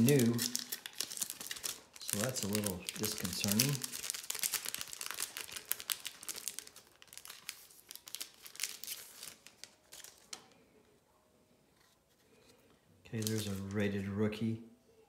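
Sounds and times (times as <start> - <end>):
foil wrapper crinkling: 0.0 - 10.6, 13.2 - 13.8.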